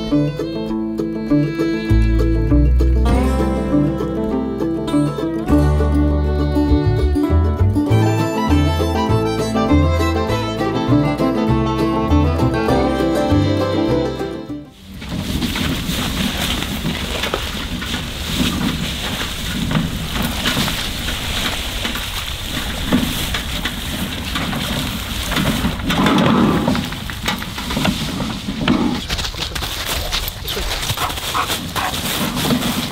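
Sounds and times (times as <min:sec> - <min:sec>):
footsteps in dry grass and leaves: 0:14.7 - 0:32.9.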